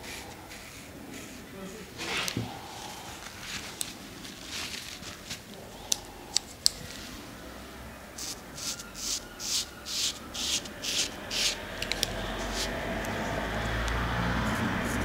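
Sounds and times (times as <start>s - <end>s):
razor scraping scalp: 8.2s - 13.6s.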